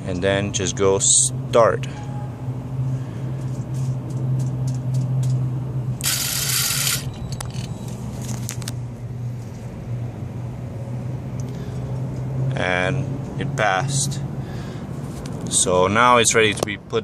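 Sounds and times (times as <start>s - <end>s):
steady low hum: 1.3s - 12.0s
actuator whirring: 6.0s - 7.8s.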